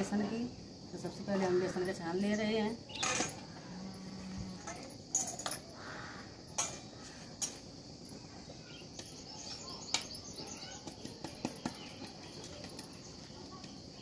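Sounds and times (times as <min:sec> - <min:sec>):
insects chirring: 0:00.0 - 0:14.0
bird chirps: 0:08.5 - 0:13.8.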